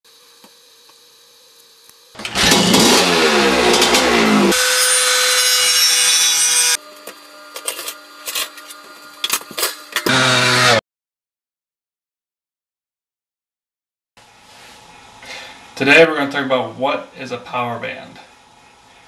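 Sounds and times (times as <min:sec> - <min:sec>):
grinder cutting metal: 0:01.6 - 0:10.8
motorcycle engine revving: 0:02.2 - 0:04.7.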